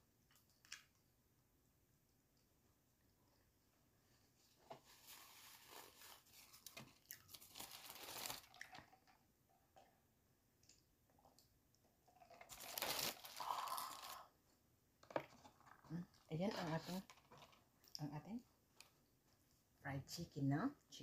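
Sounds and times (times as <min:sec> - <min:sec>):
plastic bag crinkling: 0:05.0 - 0:08.9, 0:12.2 - 0:14.3.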